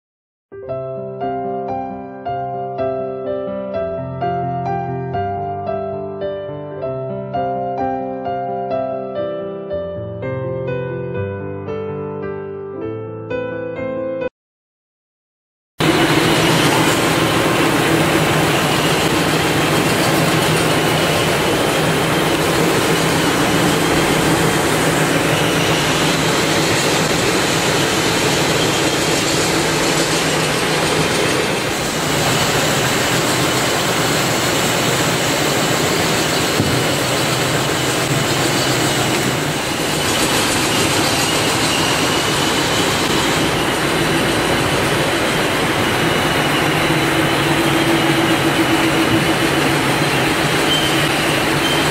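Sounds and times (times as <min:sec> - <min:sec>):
wood peeling machine droning: 0:15.8 - 0:51.9.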